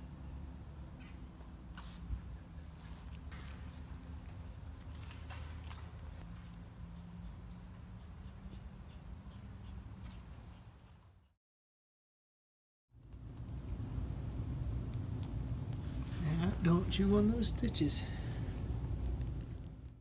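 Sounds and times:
insects trilling: 0.0s - 11.3s
wind and handling rumble: 13.0s - 20.0s.

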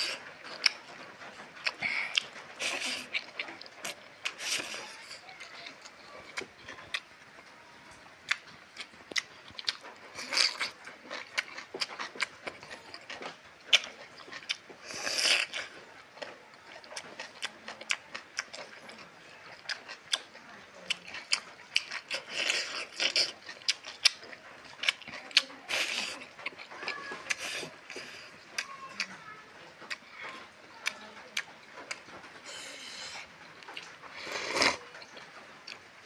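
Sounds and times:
chewing and lip smacks: 0.0s - 7.1s, 8.2s - 29.2s.

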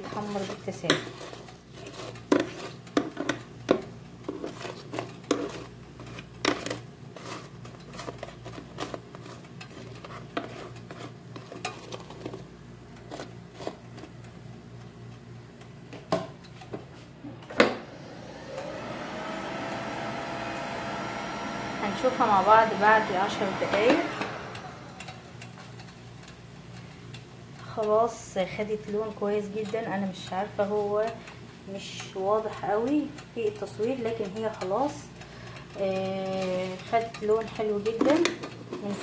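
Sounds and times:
air fryer humming: 0.0s - 39.0s
tongs clicking against pan: 25.0s - 38.8s.

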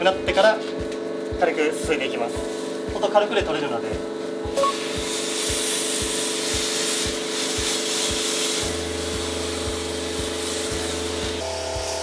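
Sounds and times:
background music with steady beat: 0.0s - 12.0s
water jet hissing from spray gun: 4.6s - 12.0s.

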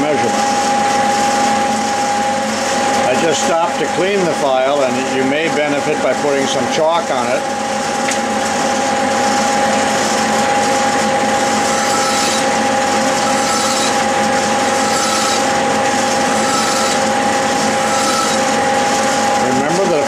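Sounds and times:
metal lathe motor whine: 0.0s - 20.0s
hand file rasping on steel: 11.6s - 12.5s, 13.2s - 14.0s, 14.8s - 15.6s, 16.3s - 18.6s.

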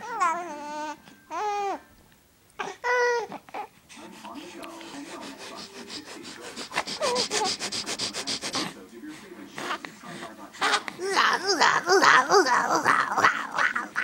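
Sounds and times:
baby whimpering: 0.0s - 1.9s, 2.6s - 3.8s, 5.2s - 8.8s, 10.6s - 14.0s
newborn baby crying: 0.0s - 1.9s, 2.6s - 3.8s, 5.8s - 7.7s, 10.6s - 14.0s
scratchy rubbing sounds: 3.9s - 8.8s.

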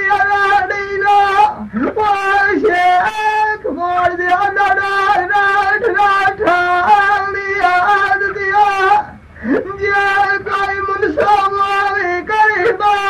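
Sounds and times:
man singing folk song: 0.0s - 13.0s.

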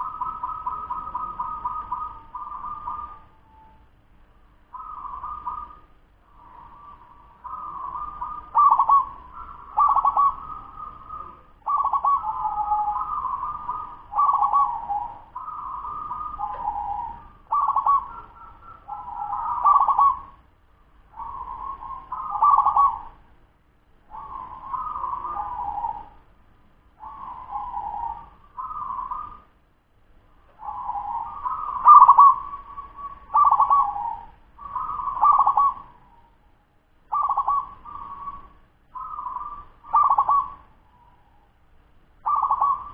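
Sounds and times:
dove cooing: 0.0s - 3.9s, 4.7s - 20.5s, 21.1s - 23.3s, 24.1s - 26.3s, 27.0s - 29.5s, 30.5s - 36.5s, 37.1s - 41.5s, 42.2s - 42.9s.

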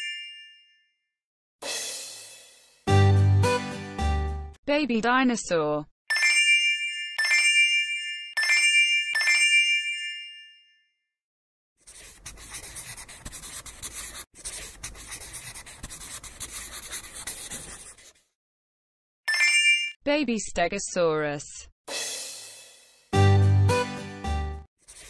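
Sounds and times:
bell-like chimes: 0.0s - 1.0s, 6.1s - 10.9s, 19.3s - 20.0s
marker scratching on paper: 11.8s - 18.3s, 24.8s - 25.0s.

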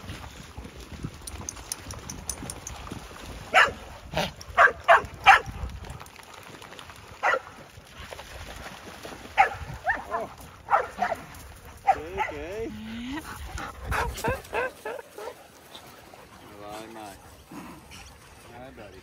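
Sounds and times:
dogs barking: 3.5s - 3.8s, 4.6s - 5.6s, 7.2s - 7.5s, 9.4s - 12.5s, 13.9s - 15.4s.

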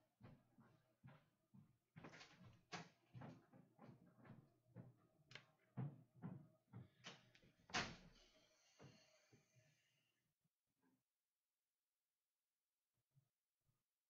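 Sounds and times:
faint knocks and shuffles: 0.0s - 8.2s
door opening and shutting: 7.0s - 8.2s.

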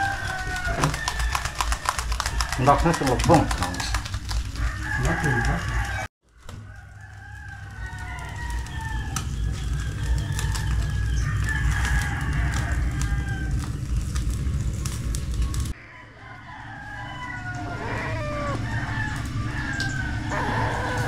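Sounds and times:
roosters crowing: 0.0s - 14.6s, 15.4s - 21.0s
steady low rumble: 8.2s - 15.8s.

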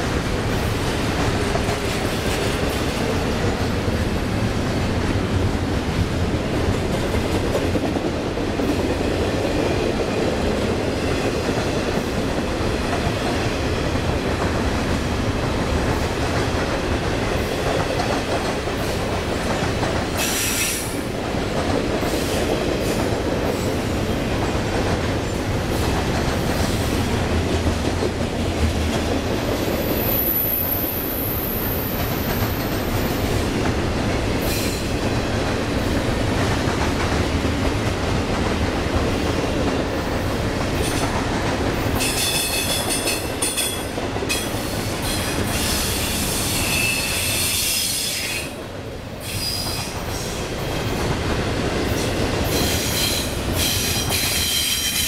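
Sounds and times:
train wheels clattering on track: 0.0s - 55.0s.

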